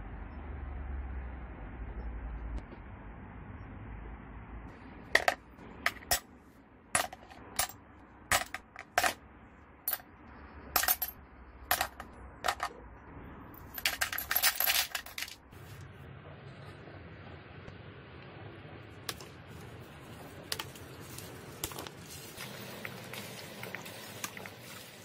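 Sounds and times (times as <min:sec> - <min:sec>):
metal parts clinking into plastic tub: 0:07.0 - 0:09.2, 0:10.8 - 0:12.8, 0:13.7 - 0:15.4.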